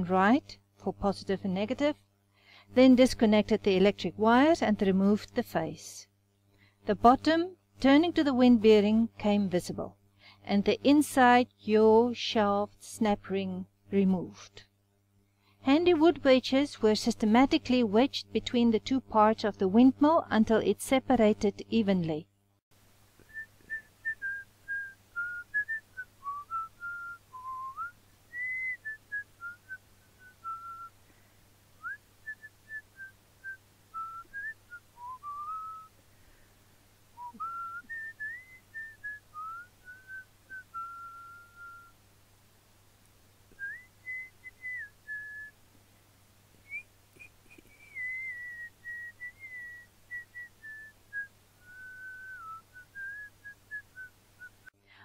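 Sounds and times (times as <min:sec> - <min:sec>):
faint low hum: 0:00.0 - 0:55.0
person whistling a tune: 0:23.2 - 0:30.9, 0:31.8 - 0:35.9, 0:37.2 - 0:41.9, 0:43.6 - 0:45.5, 0:46.7 - 0:54.6.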